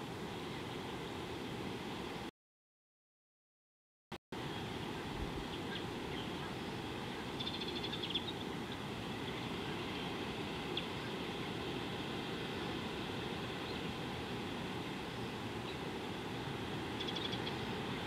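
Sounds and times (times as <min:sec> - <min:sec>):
outdoor background hiss: 0:00.0 - 0:02.3, 0:04.4 - 0:18.0.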